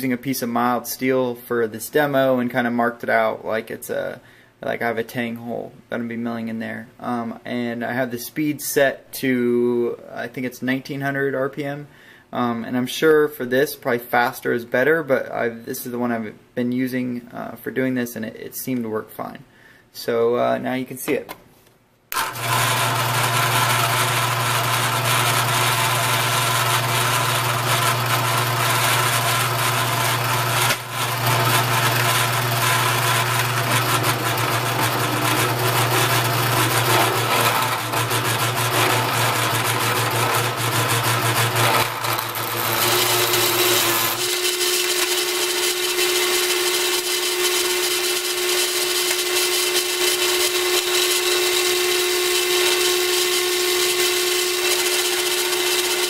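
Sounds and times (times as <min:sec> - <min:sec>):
drill press humming: 0:22.1 - 0:56.0
drill bit cutting steel: 0:22.2 - 0:56.0.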